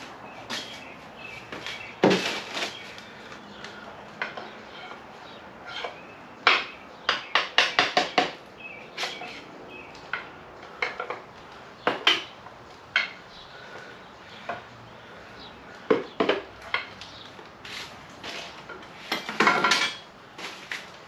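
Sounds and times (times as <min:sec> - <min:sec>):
metal tools clinking and knocking: 0:19.1 - 0:20.1.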